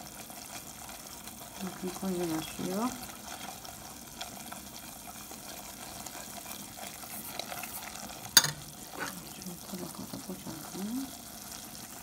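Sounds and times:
roux sizzling in a saucepan: 0:00.0 - 0:12.0
wire whisk stirring: 0:02.4 - 0:09.3.

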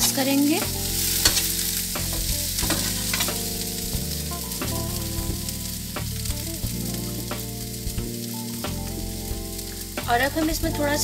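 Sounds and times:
metal spoon scraping a pan: 0:00.0 - 0:03.5
vegetables sizzling in a pan: 0:00.0 - 0:11.0.

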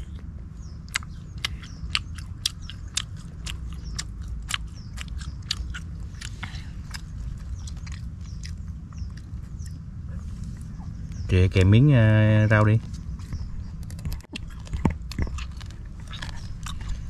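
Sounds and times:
crunchy chewing of bones: 0:00.0 - 0:17.0
steady low rumble: 0:00.0 - 0:17.0.

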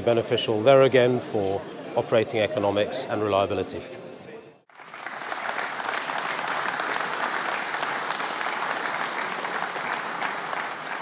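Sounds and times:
people applauding: 0:04.7 - 0:11.0.

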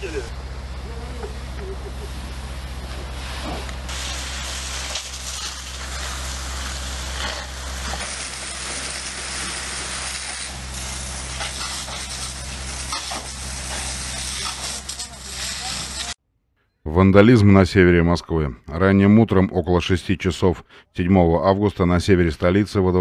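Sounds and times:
low engine hum: 0:00.0 - 0:04.9
fire hose spraying water: 0:01.6 - 0:16.2.

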